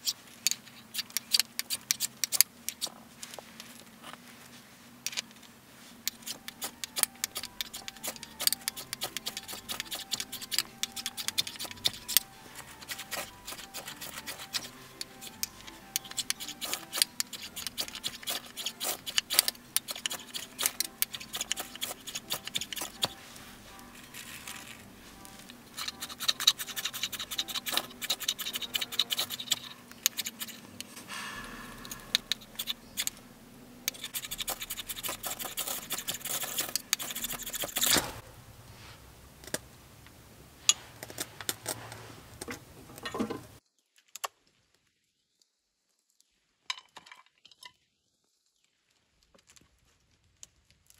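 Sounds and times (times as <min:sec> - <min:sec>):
striker scraping ferrocerium rod: 0:06.1 - 0:23.2, 0:23.8 - 0:33.2, 0:33.8 - 0:38.2.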